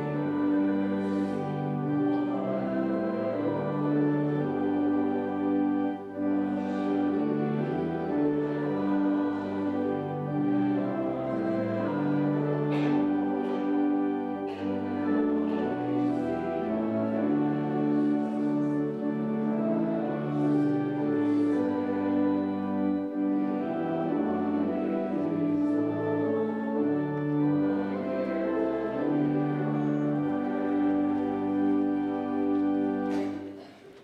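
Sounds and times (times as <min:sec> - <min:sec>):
pipe organ playing chords: 0:00.0 - 0:33.8.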